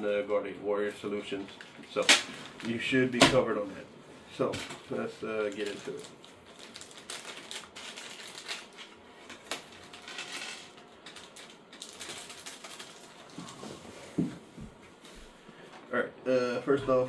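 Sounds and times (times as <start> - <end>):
plastic packets crinkling: 4.6 - 13.8.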